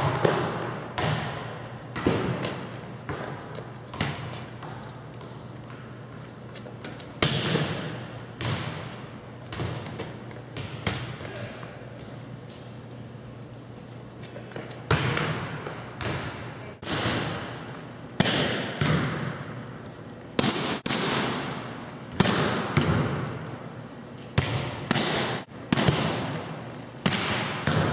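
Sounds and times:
volleyball smacks echoing: 0.0s - 5.3s, 7.2s - 11.6s, 14.8s - 19.6s, 20.4s - 23.5s, 24.3s - 27.9s.

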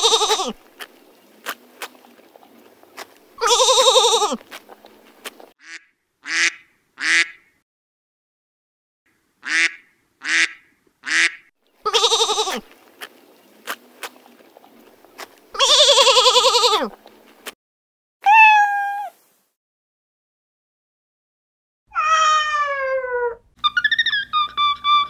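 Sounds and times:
lamb bleating: 0.0s - 0.6s, 3.4s - 4.4s, 11.8s - 12.7s, 15.6s - 17.0s
cat meowing: 18.2s - 19.2s, 21.9s - 23.4s.

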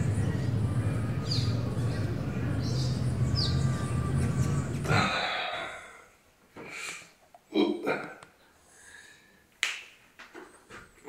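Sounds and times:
small birds chirping: 0.0s - 5.2s
steady low hum: 0.0s - 6.3s.

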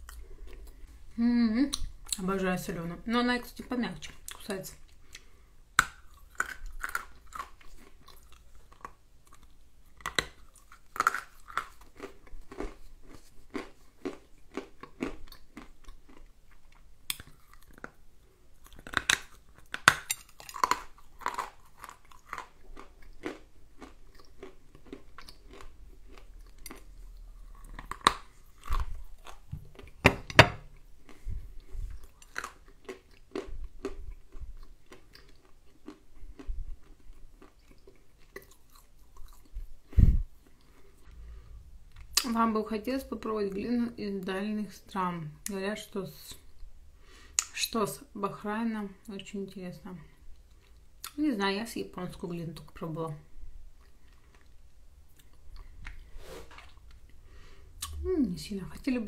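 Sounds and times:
crunching and chewing: 0.0s - 1.0s, 4.1s - 42.3s, 53.6s - 58.0s.

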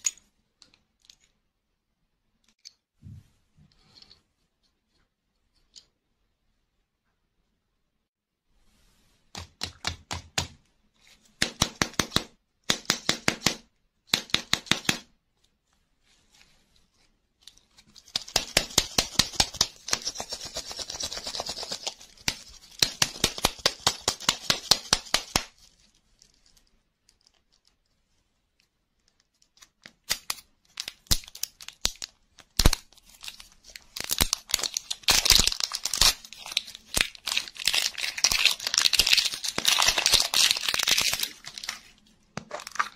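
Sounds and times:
fast scratching on plastic ball: 17.9s - 25.6s
foil wrapper crinkling and tearing: 30.0s - 42.9s.

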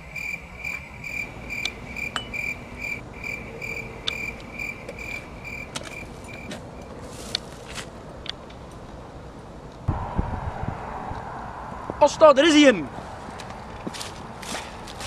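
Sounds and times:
cricket chirping: 0.0s - 7.0s.

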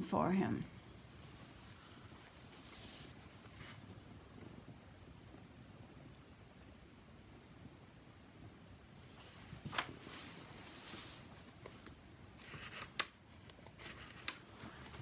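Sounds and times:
book pages rustling: 1.2s - 3.9s, 9.1s - 15.0s.

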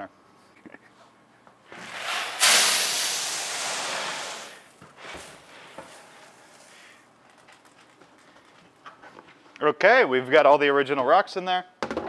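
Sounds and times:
coffee beans pouring: 1.8s - 8.0s.

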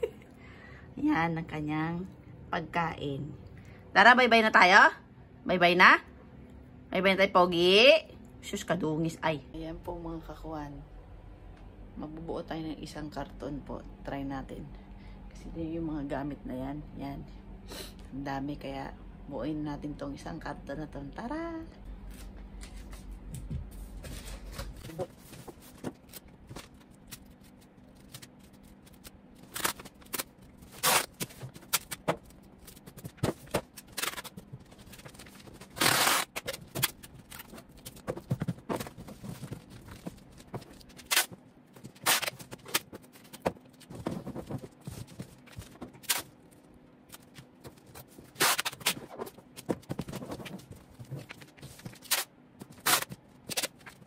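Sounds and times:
packing tape ripping off roll: 26.0s - 38.0s, 38.8s - 44.4s, 45.5s - 46.4s, 48.2s - 49.4s, 51.1s - 54.0s
cardboard flaps rustling: 30.7s - 46.2s, 47.2s - 54.0s.

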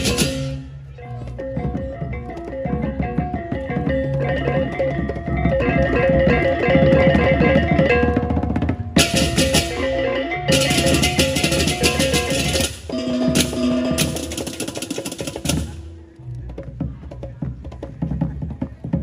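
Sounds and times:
gong-chime tones: 12.9s - 14.5s.

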